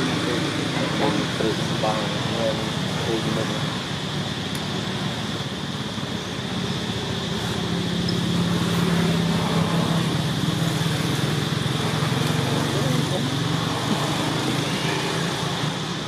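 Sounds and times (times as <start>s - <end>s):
high-pitched hum: 0.0s - 16.0s
motor engine droning: 0.0s - 16.0s.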